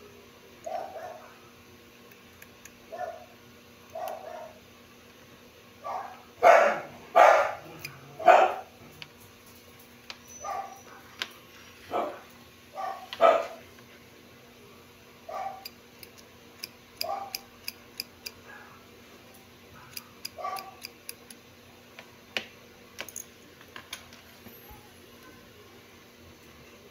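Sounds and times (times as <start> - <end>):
dog barking: 0.6 - 1.4, 2.9 - 3.3, 3.9 - 4.6, 5.8 - 8.7, 10.4 - 11.1, 11.9 - 13.6, 15.3 - 15.7, 17.0 - 17.4, 19.8 - 20.8.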